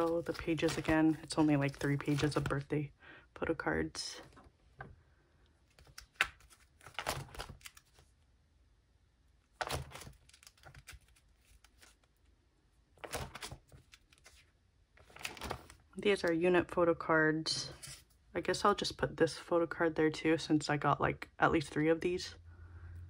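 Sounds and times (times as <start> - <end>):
plastic sleeves crinkling: 0.0 - 2.7, 5.7 - 8.1, 9.5 - 12.3, 13.0 - 16.3.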